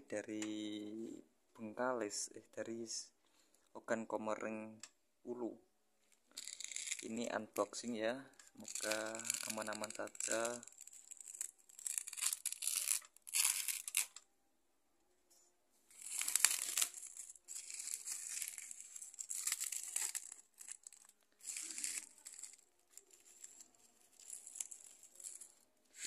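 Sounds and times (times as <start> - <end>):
plastic sack ripping and crinkling: 8.6 - 14.1, 15.9 - 26.0.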